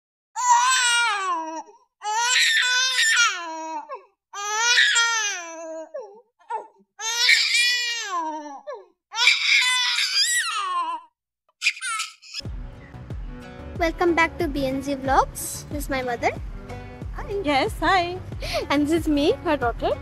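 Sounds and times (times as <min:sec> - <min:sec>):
high-pitched crying: 0:00.4 - 0:12.4.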